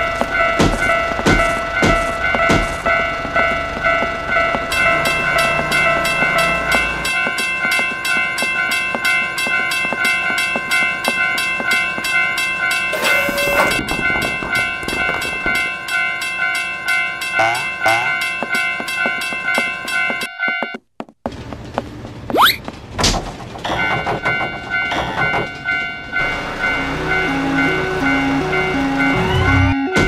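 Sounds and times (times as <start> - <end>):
railroad crossing bells ringing: 0.0 - 20.8, 23.7 - 30.0
loud horn blast: 13.0 - 13.8.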